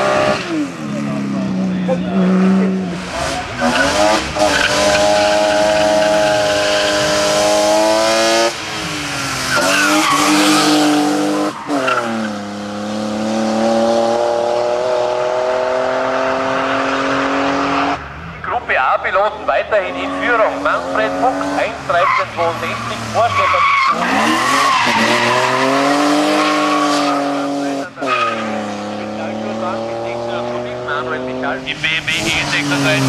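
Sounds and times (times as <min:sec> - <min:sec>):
rally car engines revving: 0:00.0 - 0:33.0
tyre squeal: 0:21.9 - 0:28.7.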